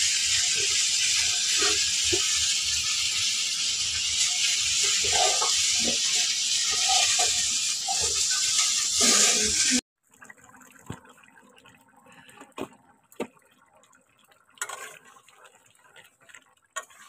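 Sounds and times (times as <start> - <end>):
food sizzling in a pan: 0.0 - 9.8.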